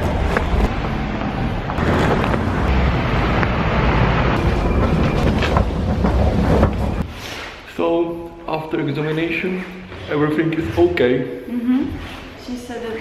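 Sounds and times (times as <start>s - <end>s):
street traffic: 0.0s - 7.3s.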